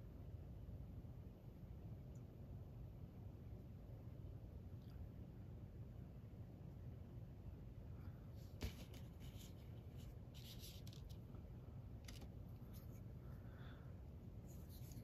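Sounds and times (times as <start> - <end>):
rustling of plastic models and paper: 8.4 - 11.4, 12.0 - 13.1, 14.4 - 15.0.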